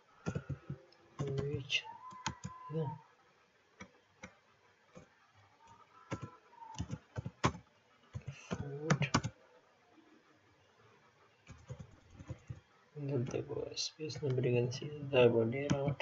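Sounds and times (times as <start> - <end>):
computer keyboard typing: 0.2 - 2.6, 6.1 - 9.4, 11.5 - 12.6.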